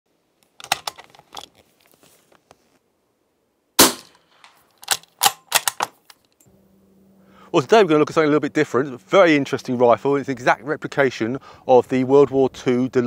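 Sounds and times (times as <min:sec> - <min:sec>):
bolt clacking: 0:00.5 - 0:01.6, 0:04.4 - 0:06.5
muffled gunshot: 0:03.8 - 0:04.2
rifle bolt clicking: 0:04.8 - 0:06.2.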